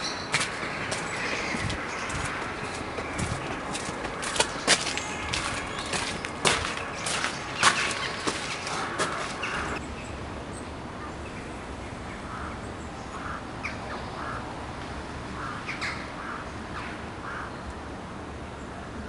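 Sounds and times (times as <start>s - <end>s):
crows cawing: 0.0s - 9.8s, 12.3s - 14.4s, 15.4s - 17.6s.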